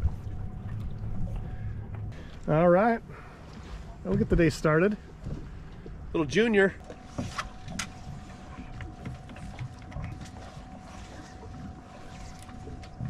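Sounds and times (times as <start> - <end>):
wind rumbling on microphone: 0.0 - 2.2
faint steady hum: 0.0 - 13.0.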